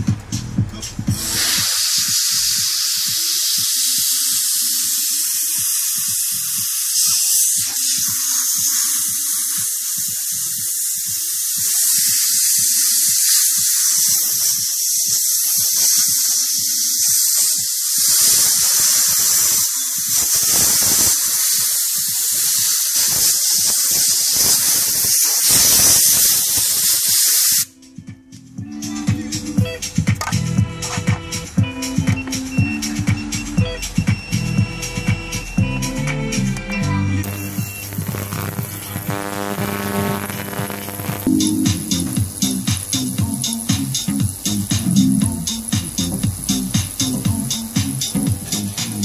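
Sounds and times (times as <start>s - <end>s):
compressed air blow gun hissing: 1.0s - 27.7s, 37.2s - 49.0s.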